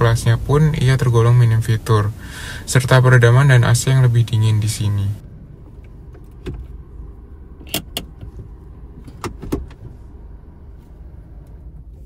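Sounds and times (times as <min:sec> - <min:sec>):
car engine idling: 0:00.0 - 0:12.0
gear selector lever clicking: 0:07.6 - 0:09.9.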